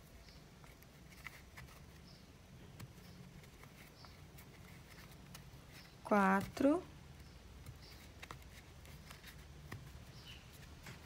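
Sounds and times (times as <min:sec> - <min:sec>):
crochet hook pulling yarn: 0:00.0 - 0:11.0.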